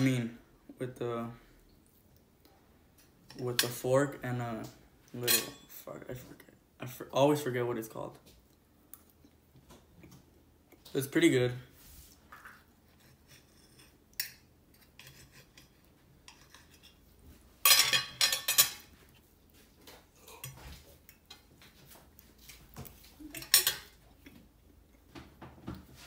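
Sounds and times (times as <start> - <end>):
fork and knife scraping plate: 12.9 - 17.0.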